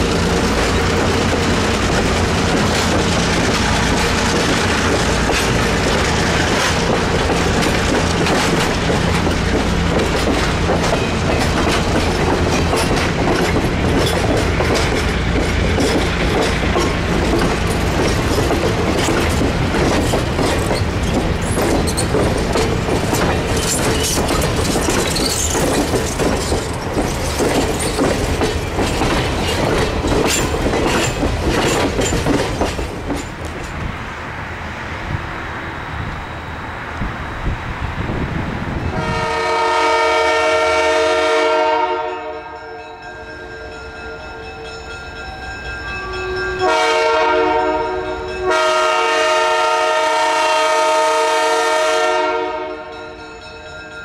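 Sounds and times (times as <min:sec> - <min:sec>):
wheels clicking over rail joints: 0:00.0 - 0:34.0
train wheels on rail: 0:00.0 - 0:54.0
high wheel squeals: 0:20.6 - 0:22.4, 0:23.4 - 0:28.0.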